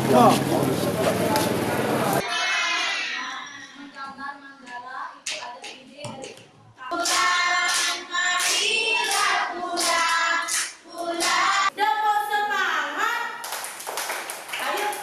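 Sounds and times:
children and woman singing: 2.2 - 13.2
hand claps: 7.0 - 11.5, 13.4 - 15.0.

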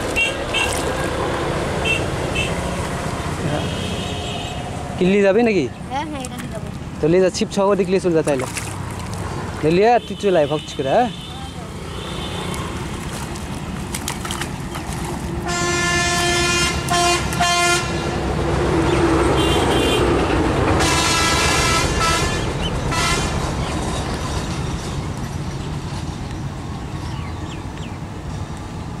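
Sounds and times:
vehicle horn honking: 3.5 - 4.6, 9.9 - 12.7, 15.4 - 18.0, 19.3 - 20.2, 20.8 - 23.3.

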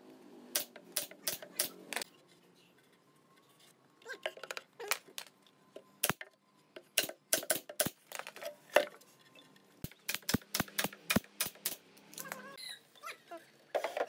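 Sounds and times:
nail gun firing: 0.5 - 2.0, 7.0 - 8.1, 9.8 - 11.8.

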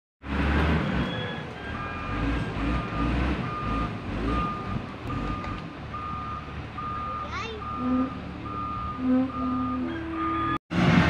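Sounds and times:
back-up alarm beeping: 2.8 - 10.6.

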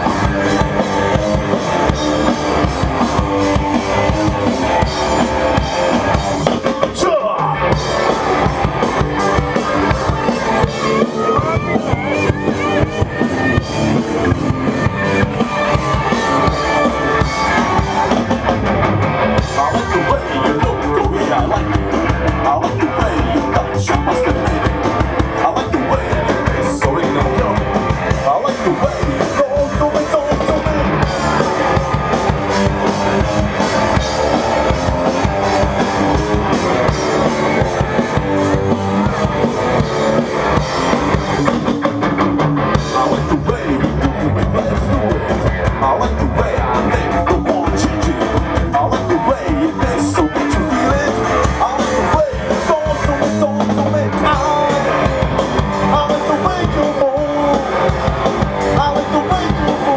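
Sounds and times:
drum kit beat: 0.0 - 59.9
rock band playing: 0.0 - 59.9.

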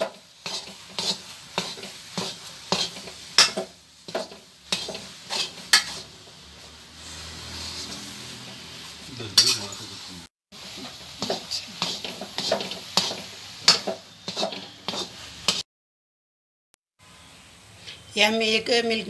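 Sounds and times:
metal spatula scraping a metal pan: 0.0 - 9.8, 10.7 - 15.6.

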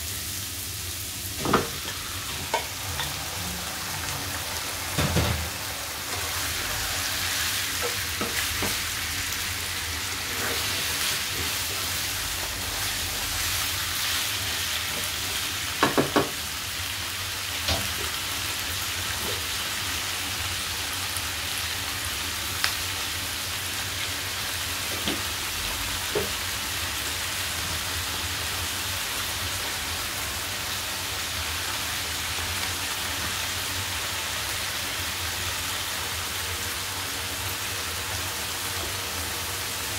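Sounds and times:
chicken and onions sizzling in a wok: 0.0 - 39.9
utensil knocking against pan: 15.8 - 16.4.

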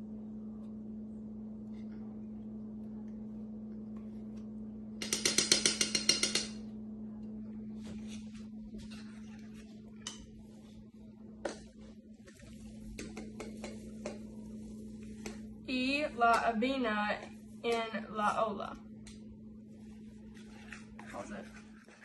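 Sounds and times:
steady low hum: 0.0 - 22.0
spoon rapping metal saucepan: 5.0 - 6.6
stirring thick mixture in pot: 11.5 - 15.6, 19.8 - 22.0.

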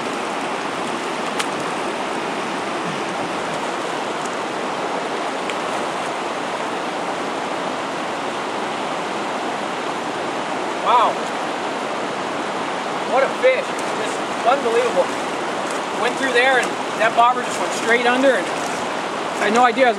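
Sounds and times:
river water rushing over rocks: 0.0 - 19.9.

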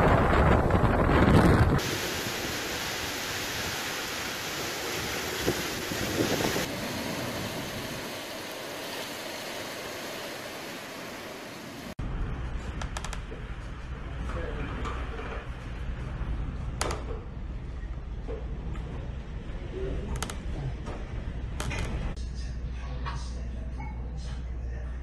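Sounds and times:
wind buffeting the microphone: 0.0 - 2.5, 5.0 - 6.7
hurricane wind through palm trees: 0.0 - 12.8.

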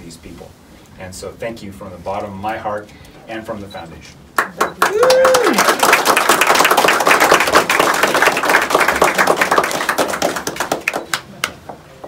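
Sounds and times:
crowd applauding: 4.4 - 11.6.

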